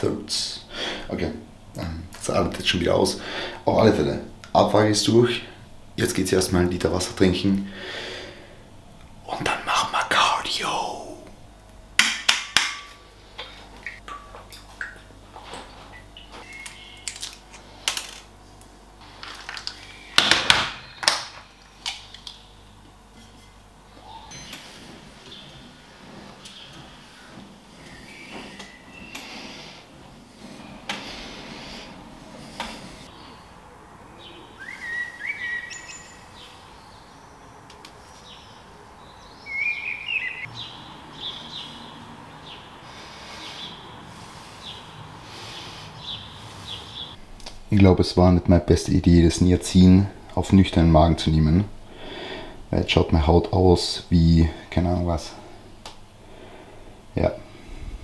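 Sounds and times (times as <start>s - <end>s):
background hiss: 0.0s - 12.0s, 21.2s - 58.0s
songbird whistled phrases: 34.5s - 36.2s.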